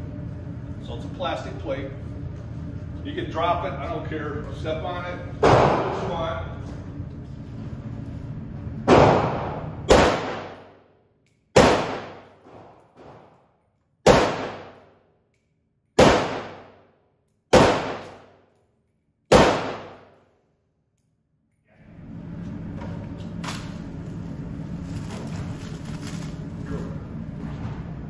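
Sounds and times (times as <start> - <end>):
rifle shots ringing indoors: 8.8 - 21.6.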